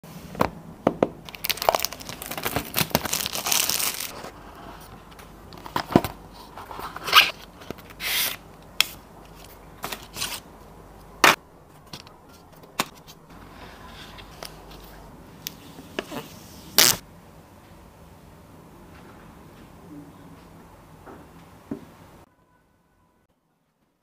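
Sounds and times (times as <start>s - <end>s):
cardboard packaging tearing: 1.3s - 4.4s.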